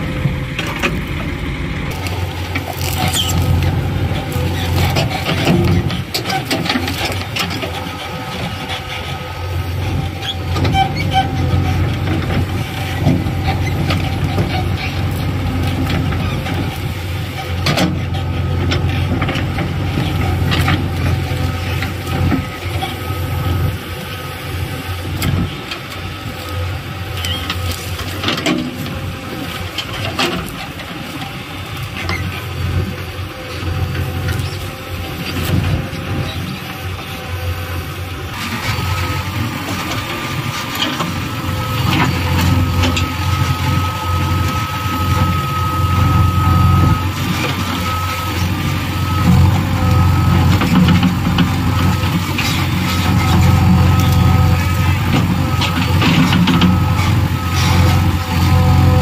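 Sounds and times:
diesel engine under load: 0:00.0 - 0:59.0.

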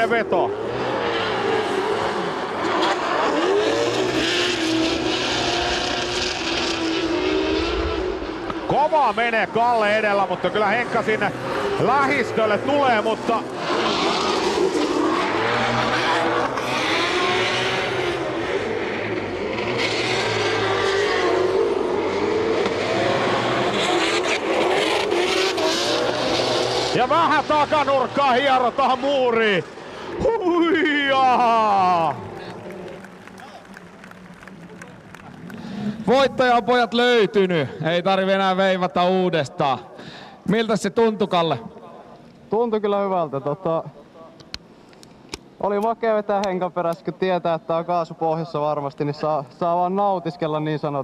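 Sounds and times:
drift car engines at high revs: 0:00.0 - 0:37.2.

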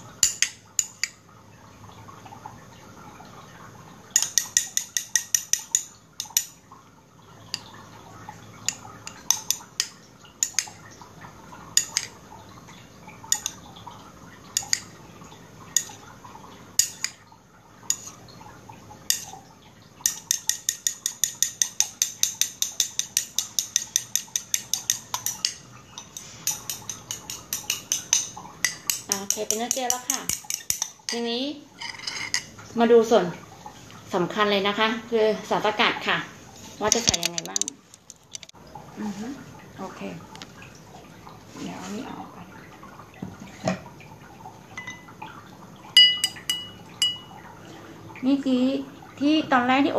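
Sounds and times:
utensil clinking against bowl: 0:00.2 - 0:01.2, 0:04.2 - 0:06.6, 0:08.7 - 0:10.8, 0:11.8 - 0:12.2, 0:14.6 - 0:14.9, 0:16.8 - 0:17.2, 0:17.9 - 0:18.2, 0:19.1 - 0:19.4, 0:20.0 - 0:32.5, 0:44.8 - 0:45.1, 0:46.0 - 0:47.4.

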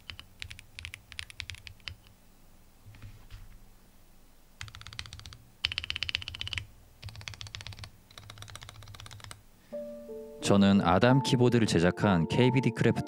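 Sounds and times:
rapid keyboard typing: 0:00.0 - 0:02.1, 0:04.6 - 0:09.4.

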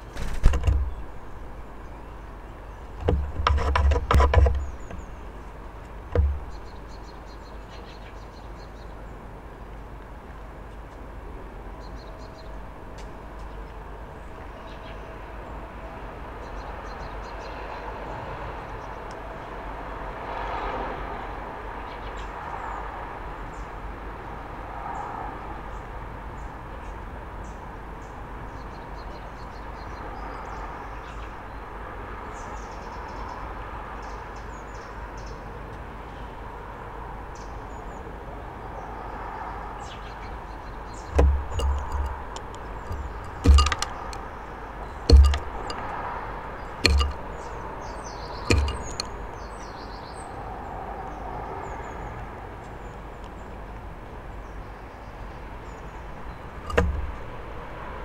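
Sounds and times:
distant traffic hum: 0:00.0 - 0:58.0
knocks on wooden bird feeder: 0:00.2 - 0:01.0, 0:03.0 - 0:05.1, 0:06.1 - 0:06.6, 0:41.1 - 0:44.2, 0:45.1 - 0:45.9, 0:46.8 - 0:47.2, 0:48.5 - 0:49.2, 0:56.7 - 0:57.2.

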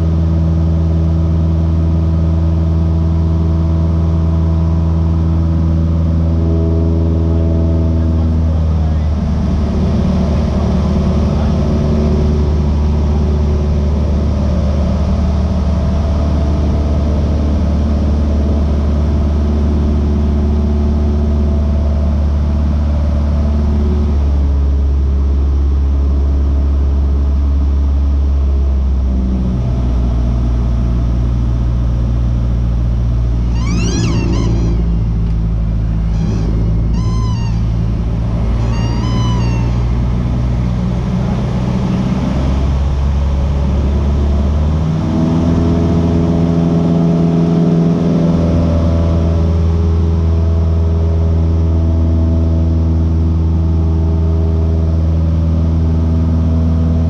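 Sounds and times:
light aircraft engine droning: 0:00.0 - 0:57.0
high-pitched wavering cries: 0:33.4 - 0:40.6.

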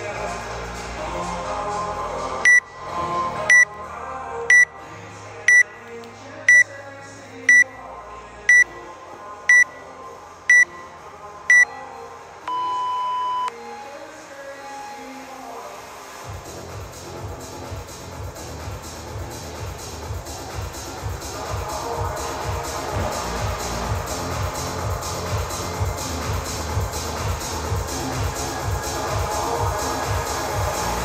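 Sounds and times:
background music: 0:00.0 - 0:31.0
timer beeping: 0:02.5 - 0:02.8, 0:03.5 - 0:03.8, 0:04.5 - 0:04.7, 0:05.5 - 0:05.7, 0:06.5 - 0:06.7, 0:07.5 - 0:07.8, 0:08.5 - 0:08.8, 0:09.5 - 0:09.8, 0:10.5 - 0:10.9, 0:12.5 - 0:13.6.

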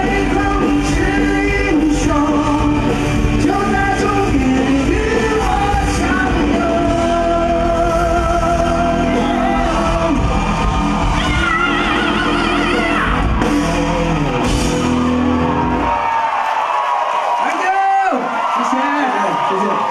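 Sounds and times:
man singing: 0:00.0 - 0:10.5
live rock band: 0:00.0 - 0:17.4.

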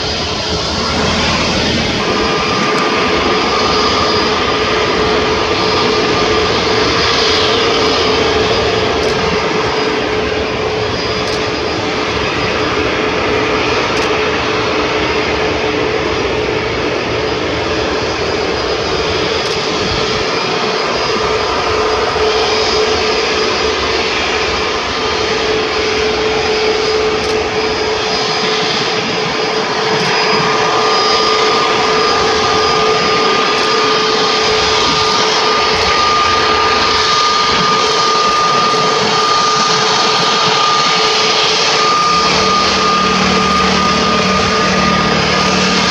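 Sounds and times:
higher tone: 0:00.0 - 0:12.8, 0:30.0 - 0:45.9
jet airliner engines whining: 0:00.0 - 0:45.9
low hum: 0:00.0 - 0:45.9.

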